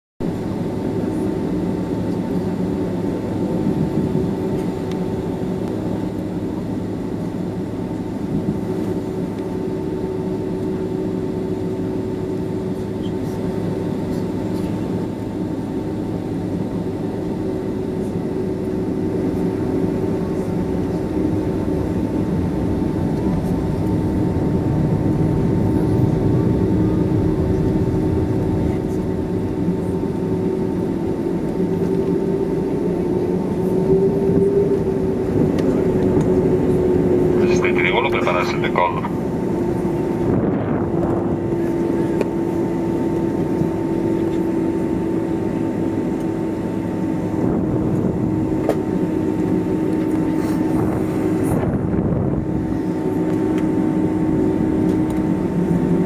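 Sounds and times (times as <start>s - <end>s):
jet engines rumbling: 0.2s - 56.0s
high whine: 18.4s - 43.9s.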